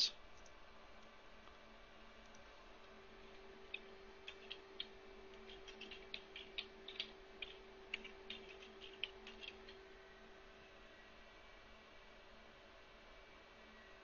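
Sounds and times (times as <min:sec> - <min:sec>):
faint electrical hum: 0:00.0 - 0:14.0
computer keys clicking: 0:03.7 - 0:09.8.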